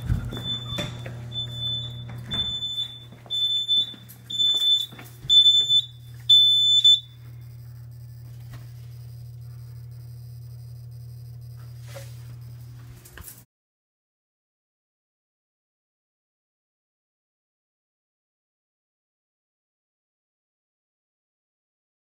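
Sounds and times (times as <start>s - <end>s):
fire alarm panel beeping: 0.0s - 12.6s
low steady hum: 0.0s - 13.4s.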